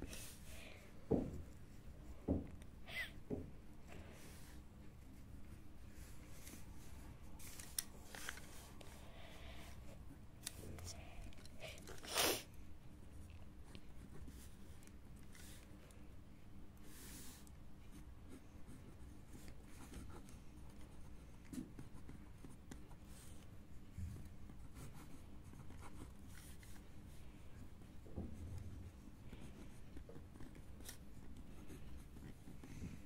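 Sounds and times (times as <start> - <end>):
pen scratching on paper: 17.9 - 23.4, 24.2 - 27.0.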